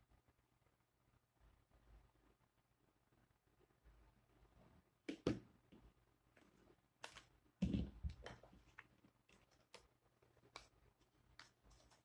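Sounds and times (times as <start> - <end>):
paper rustling and creasing: 7.9 - 12.0.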